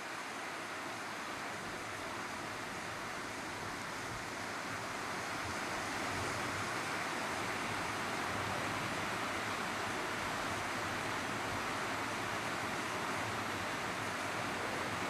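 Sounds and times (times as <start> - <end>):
fountain water splashing: 0.0 - 15.0.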